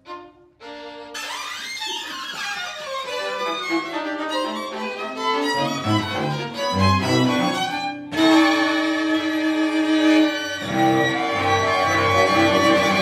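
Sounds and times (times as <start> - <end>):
string quartet playing: 0.0 - 13.0.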